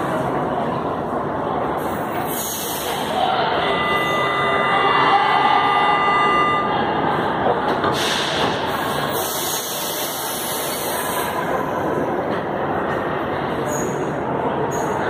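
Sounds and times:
train and station noise: 0:00.0 - 0:15.0.

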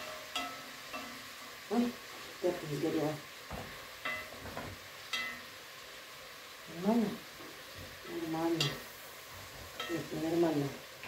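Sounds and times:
metal spoon clinking on pot: 0:00.0 - 0:01.2, 0:05.1 - 0:05.5, 0:09.8 - 0:10.1
food sizzling in a pot: 0:00.0 - 0:11.0.

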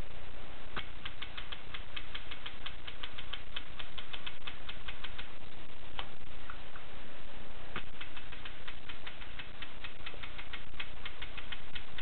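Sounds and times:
manual typewriter typing: 0:07.8 - 0:12.0.

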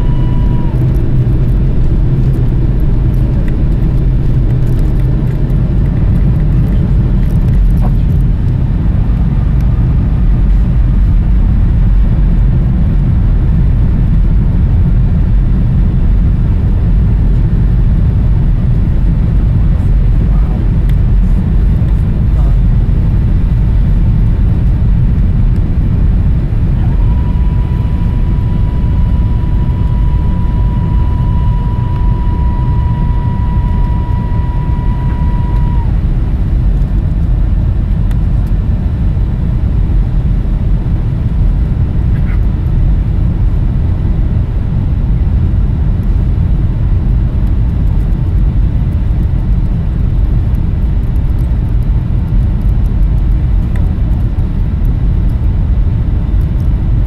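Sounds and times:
rushing air: 0:00.0 - 0:12.6
high whine: 0:00.0 - 0:57.0
jet engines roaring: 0:00.0 - 0:57.0.

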